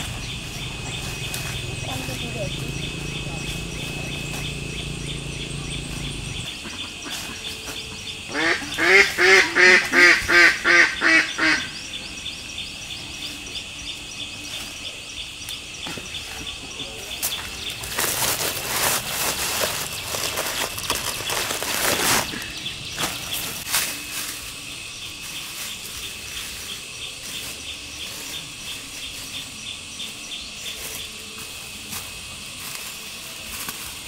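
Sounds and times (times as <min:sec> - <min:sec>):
dry leaves crackling underfoot: 0:00.0 - 0:34.0
high insect drone: 0:00.0 - 0:34.0
duck quacking: 0:08.3 - 0:11.7.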